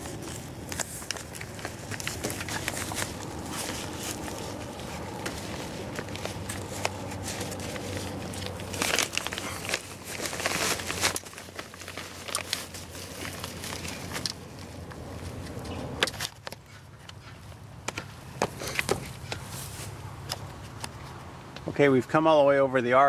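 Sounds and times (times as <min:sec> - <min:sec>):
plastic sheet crinkling: 0:00.0 - 0:16.6
plastic rustling: 0:00.0 - 0:16.8
wire clicking and scraping: 0:00.0 - 0:21.2.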